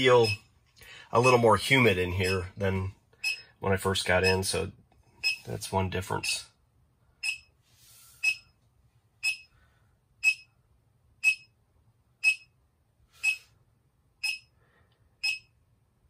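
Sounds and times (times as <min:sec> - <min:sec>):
high electronic beeps: 0:00.0 - 0:00.4, 0:05.2 - 0:05.5, 0:07.2 - 0:07.5, 0:08.2 - 0:08.4, 0:09.2 - 0:09.5, 0:10.2 - 0:10.4, 0:11.2 - 0:11.5, 0:12.2 - 0:12.5, 0:14.2 - 0:14.4, 0:15.2 - 0:15.4.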